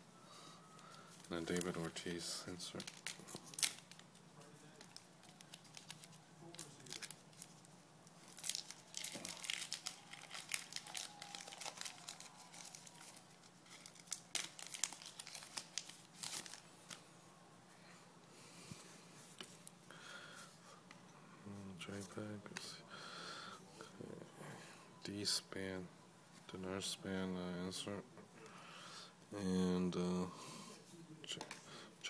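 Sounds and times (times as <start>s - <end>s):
wrapper tearing and crinkling: 2.6s - 4.2s, 4.8s - 17.0s.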